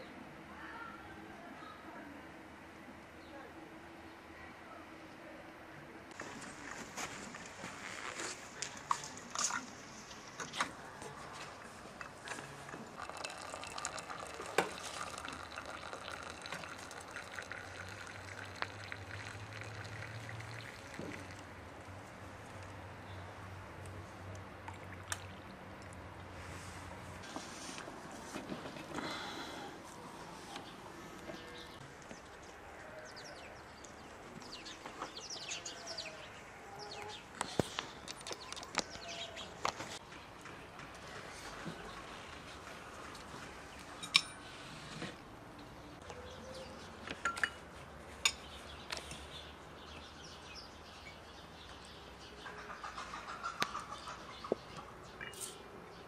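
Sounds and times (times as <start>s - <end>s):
water running into a glass: 12.8s - 21.4s
birds chirping: 29.0s - 40.8s, 48.2s - 56.0s.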